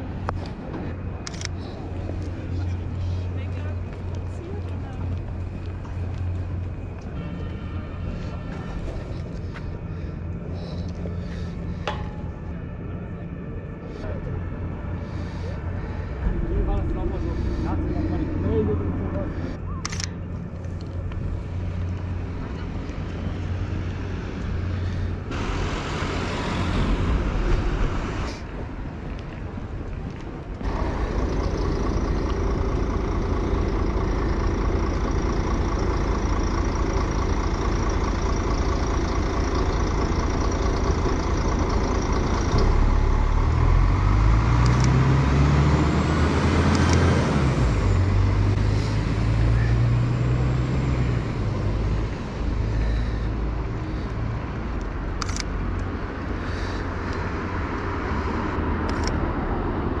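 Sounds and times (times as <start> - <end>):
bus engine passing: 0.0 - 60.0
street traffic rumble: 0.0 - 60.0.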